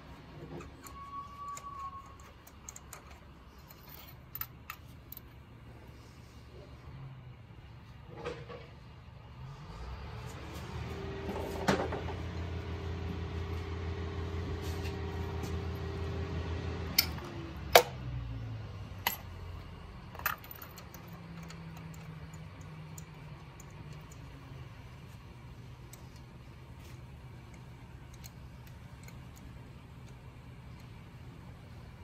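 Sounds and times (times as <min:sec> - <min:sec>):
steady low hum: 0:08.8 - 0:32.0.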